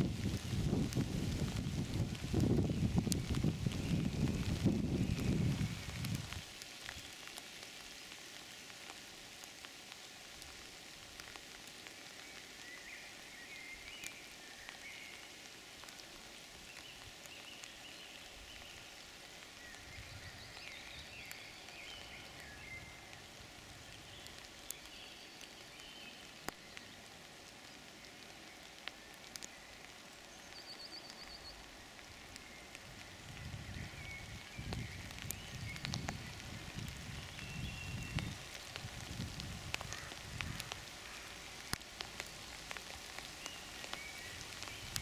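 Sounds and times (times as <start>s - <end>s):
faint hiss: 0.0s - 45.0s
soft ticks: 26.4s - 26.9s, 28.8s - 29.5s.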